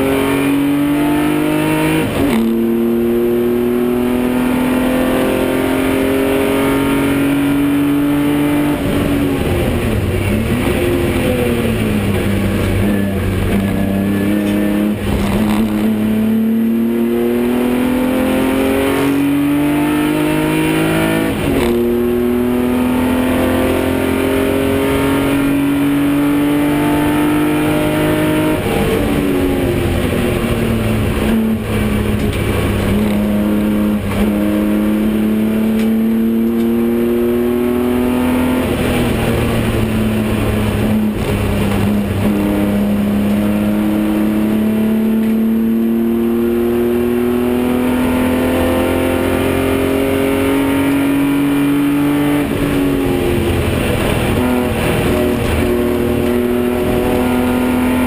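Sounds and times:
racing car engine from inside cabin: 0:00.0 - 0:58.0.

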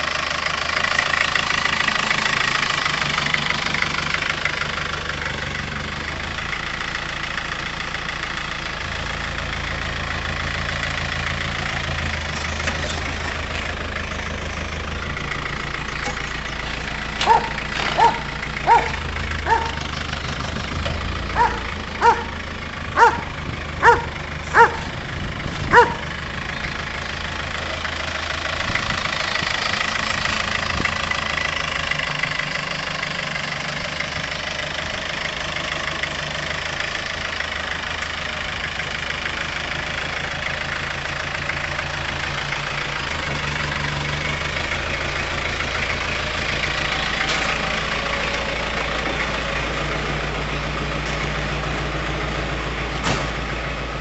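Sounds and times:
vehicle engine idling: 0:00.0 - 0:54.0
dog barking: 0:17.2 - 0:19.8, 0:21.4 - 0:22.4, 0:23.0 - 0:24.9, 0:25.7 - 0:26.0.

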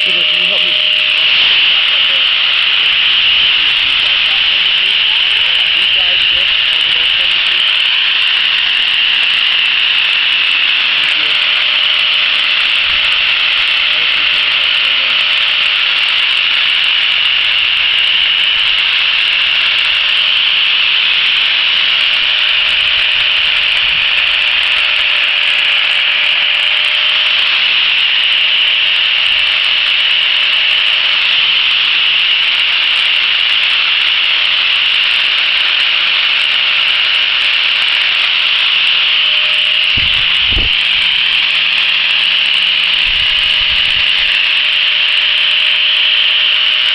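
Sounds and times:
angle grinder sanding wood: 0:00.0 - 0:46.9
low knocks of grinder: 0:40.0 - 0:40.8.

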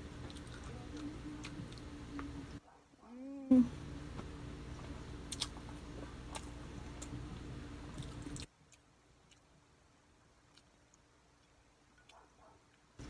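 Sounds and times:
chewing food: 0:00.2 - 0:02.6, 0:05.3 - 0:07.2, 0:07.9 - 0:13.0.

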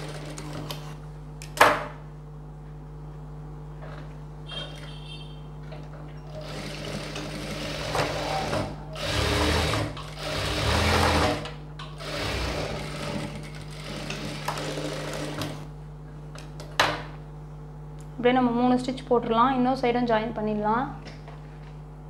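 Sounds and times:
sewing machine stitching: 0:06.3 - 0:15.7.

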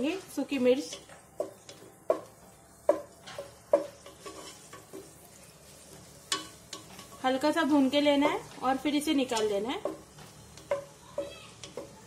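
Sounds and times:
faint oil sizzle: 0:00.0 - 0:12.0
wooden spoon stirring in pot: 0:00.0 - 0:12.0
spoon knocking against pot: 0:02.9 - 0:04.4, 0:09.3 - 0:12.0.

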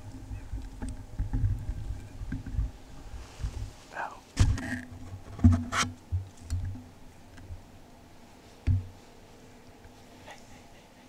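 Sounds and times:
light rustling: 0:00.3 - 0:07.6.

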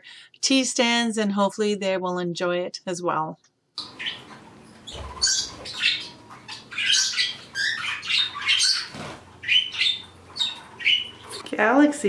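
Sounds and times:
parrots chirping and squawking: 0:03.8 - 0:11.5.

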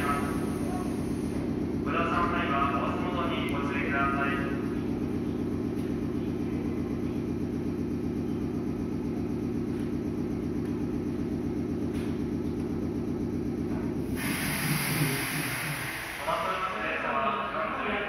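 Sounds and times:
electric train humming: 0:00.0 - 0:09.5, 0:12.5 - 0:18.0
loud hiss: 0:14.1 - 0:16.8.

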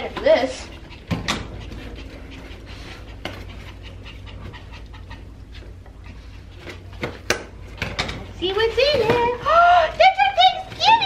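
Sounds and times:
dog panting: 0:00.0 - 0:07.2.

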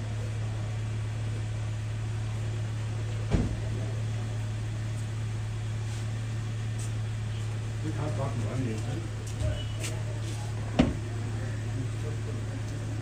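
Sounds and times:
car engine idling: 0:00.0 - 0:13.0
sharp thump: 0:03.3 - 0:03.7, 0:10.8 - 0:11.0.

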